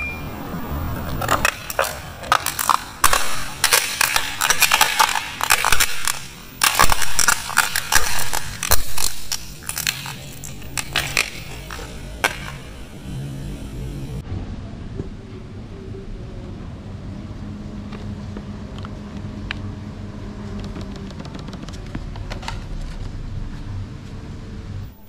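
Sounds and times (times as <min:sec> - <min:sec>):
plastic toy cracking and crunching: 0:01.2 - 0:13.0.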